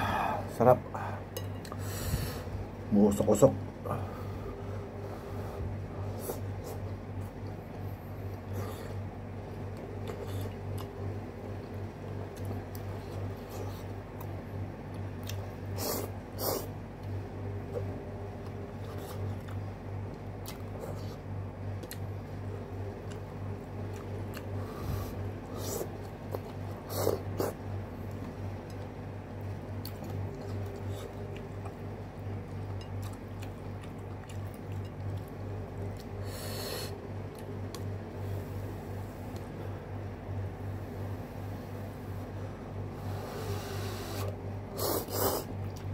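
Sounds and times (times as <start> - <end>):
steady low hum: 0.0 - 45.9
chewing: 9.7 - 15.4, 22.8 - 24.8, 25.4 - 36.2.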